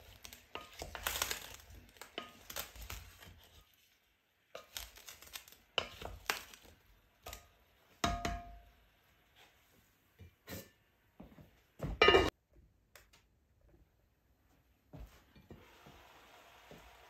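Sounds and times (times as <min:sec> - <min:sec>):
food shifting in pot: 0:00.0 - 0:03.8, 0:04.5 - 0:07.6
spoon knocking against pot: 0:08.0 - 0:08.7.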